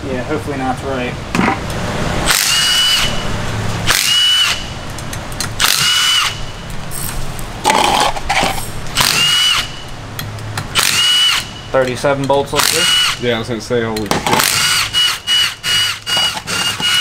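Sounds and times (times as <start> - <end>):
power drill whirring: 2.3 - 3.2, 3.8 - 4.7, 5.6 - 6.4, 9.0 - 9.8, 10.8 - 11.6, 12.6 - 13.2, 14.4 - 17.0.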